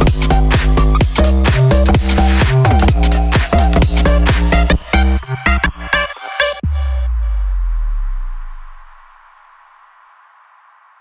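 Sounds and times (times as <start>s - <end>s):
electronic dance music: 0.0s - 9.2s.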